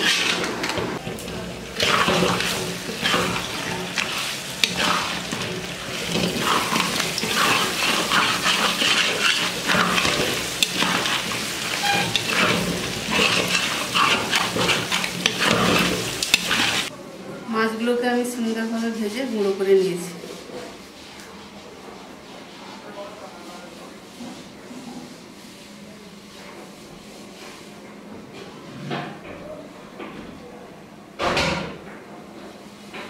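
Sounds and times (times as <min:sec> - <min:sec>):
fish frying in hot oil: 0:01.0 - 0:16.9.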